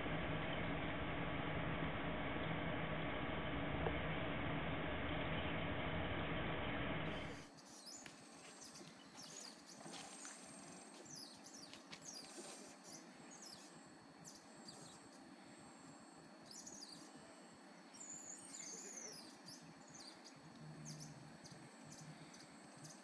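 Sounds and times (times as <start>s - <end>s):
servo motors whining: 7.0s - 23.0s.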